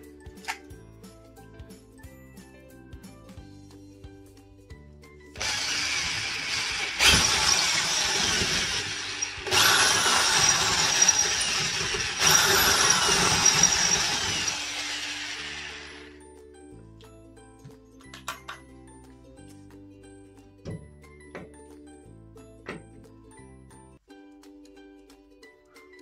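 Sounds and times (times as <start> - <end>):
background music with steady tones: 0.0 - 9.5, 10.4 - 26.0
power drill boring through drywall: 5.4 - 16.2.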